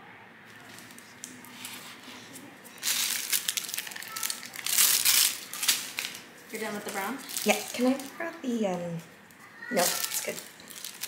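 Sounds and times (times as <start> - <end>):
crinkling and crumpling: 0.5 - 11.0.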